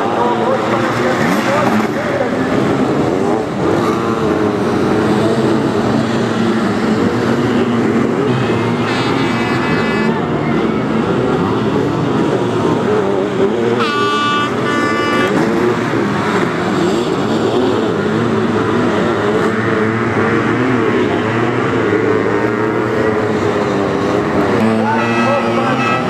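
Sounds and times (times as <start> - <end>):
motorcycle engines revving hard: 0.0 - 26.0
horn blasts: 8.7 - 10.3, 13.7 - 15.7, 24.6 - 26.0.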